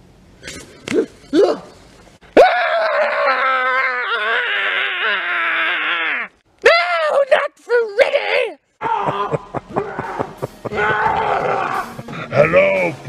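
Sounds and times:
man screaming: 2.4s - 7.3s, 8.0s - 12.0s.

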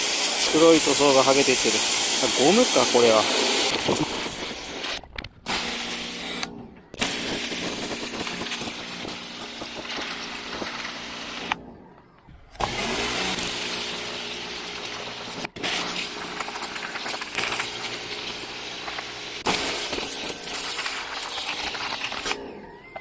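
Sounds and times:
pressure washer spray hissing: 0.0s - 11.5s, 12.6s - 21.9s
pump motor hum: 12.6s - 22.3s.

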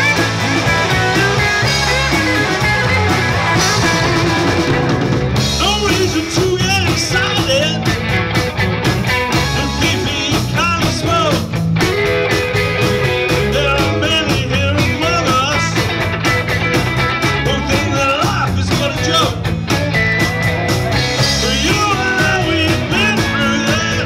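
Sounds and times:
rock band playing: 0.0s - 24.0s
person singing: 5.5s - 8.0s, 9.4s - 11.5s, 13.3s - 15.9s, 17.3s - 19.4s, 20.9s - 24.0s.

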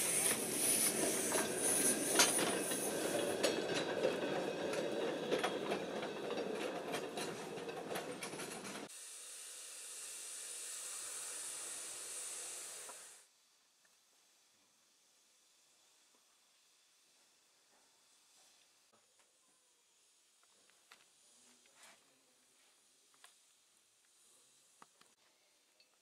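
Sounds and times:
high hiss: 0.0s - 3.7s, 8.9s - 19.0s, 19.6s - 25.2s
train wheels clicking over rail joints: 0.0s - 8.9s.

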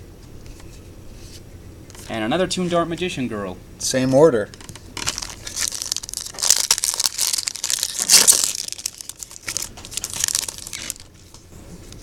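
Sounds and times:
foil wrapper crinkling: 4.6s - 11.4s.

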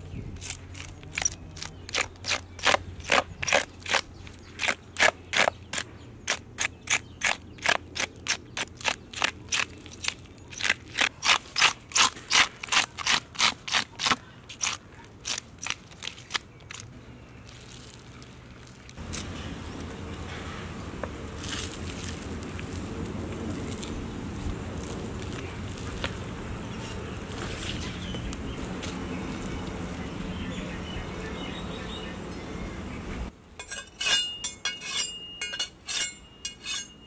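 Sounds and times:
outdoor background noise: 0.0s - 37.0s
fish scaler scraping scales: 33.6s - 37.0s.

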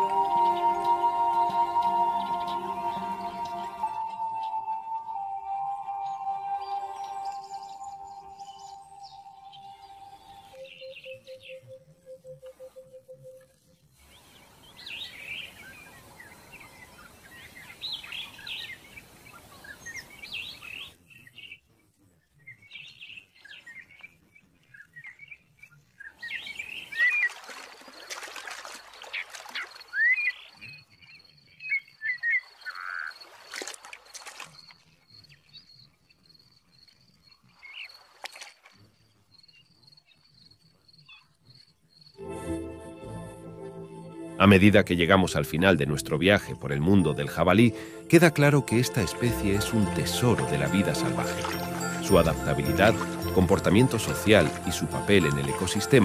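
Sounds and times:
steady high-pitched tone: 0.0s - 13.4s, 42.2s - 56.0s.

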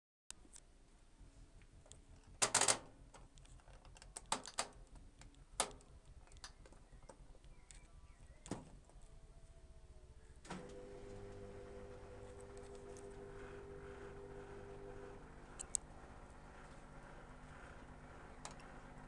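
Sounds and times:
washing machine humming: 10.5s - 19.0s.

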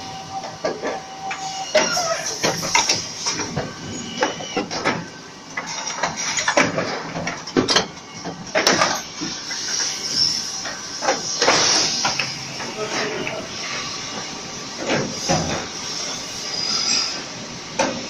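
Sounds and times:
machinery clicks knocks and clatter: 1.8s - 9.4s.

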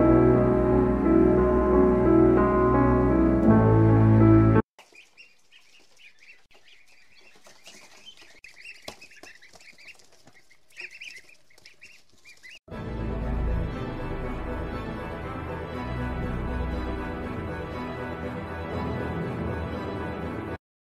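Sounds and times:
background music: 0.0s - 4.6s, 12.7s - 20.6s
ducklings peeping: 4.8s - 12.6s.

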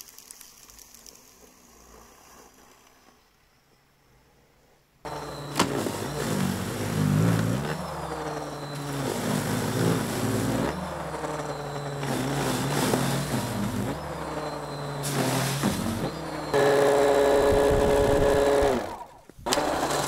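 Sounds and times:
electric snow shovel motor running: 5.1s - 20.0s.

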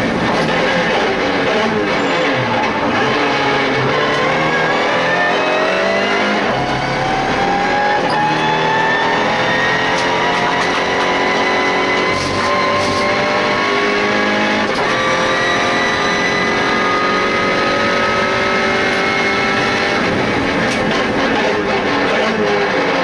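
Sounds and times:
race car engine at full throttle: 0.0s - 23.0s
wind noise: 19.0s - 21.4s.

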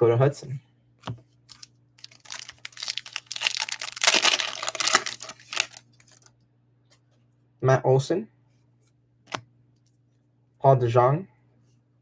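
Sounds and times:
cards and foil wrapper crinkling: 1.5s - 6.3s.

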